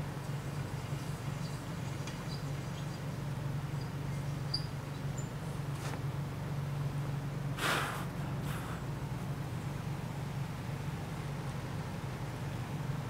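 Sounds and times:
steady low hum: 0.0 - 13.0
hand tap squeaking and ticking: 4.5 - 5.3.

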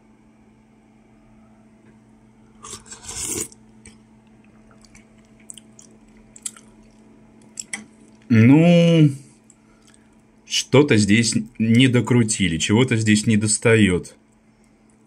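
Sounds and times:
quiet chewing: 2.5 - 8.3, 9.3 - 10.4
person slurping soup: 2.6 - 3.6.

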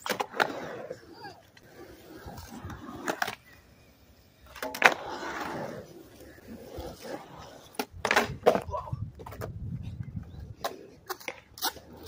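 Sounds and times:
skateboard clack: 0.0 - 3.6, 4.4 - 12.0
skateboard wheels rolling on concrete: 0.0 - 12.0.

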